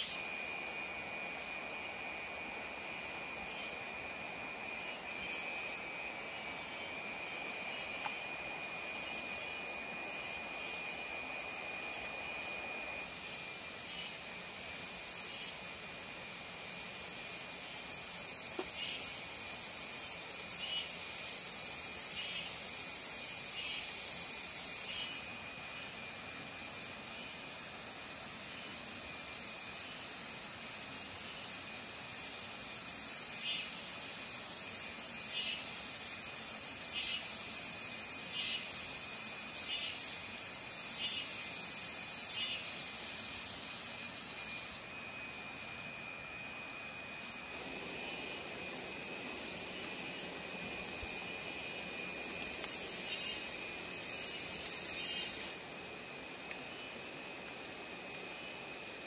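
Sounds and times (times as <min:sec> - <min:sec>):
short high insect chirps: 0:00.0 - 0:00.4, 0:16.3 - 0:25.6, 0:32.7 - 0:46.2, 0:46.8 - 0:58.5
even hiss: 0:00.0 - 0:59.0
insects buzzing: 0:00.0 - 0:59.0.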